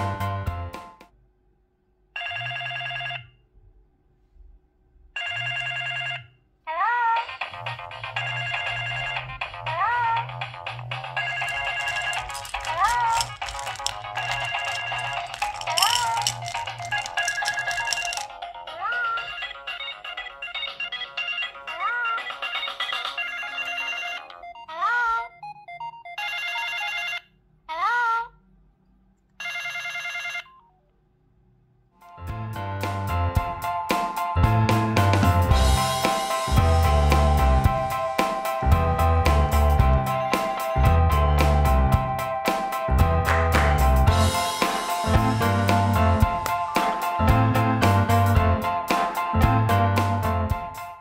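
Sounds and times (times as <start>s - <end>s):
phone ringtone melody: 2.2s - 3.3s, 5.2s - 6.3s, 8.1s - 9.5s, 11.1s - 15.9s, 17.2s - 27.3s.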